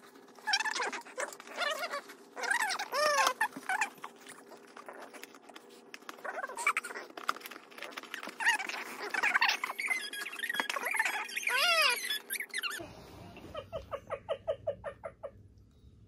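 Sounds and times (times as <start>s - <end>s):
sped-up squeaky voices: 8.1s - 14.1s.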